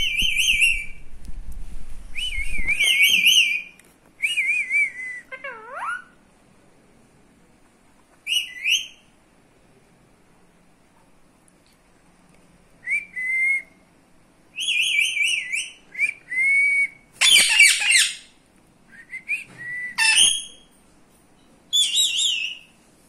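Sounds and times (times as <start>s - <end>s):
parakeets whistling calls: 14.6s - 15.8s, 17.2s - 18.3s, 19.9s - 20.7s, 21.7s - 22.7s
parakeet harsh screech: 20.0s - 20.6s.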